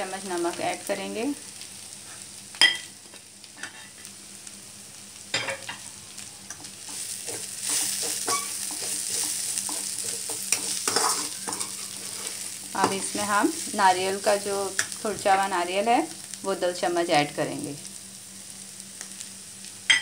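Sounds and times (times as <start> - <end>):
leaves sizzling in a pan: 0.0 - 20.0
metal spatula scraping a pan: 6.9 - 13.2.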